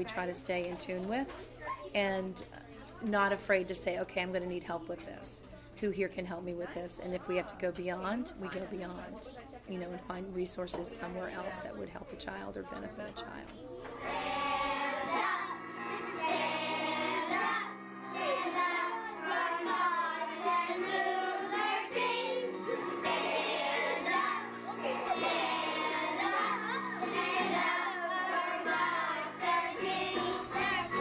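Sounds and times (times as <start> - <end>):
children singing together: 13.8 - 31.0
instrumental accompaniment: 13.8 - 31.0.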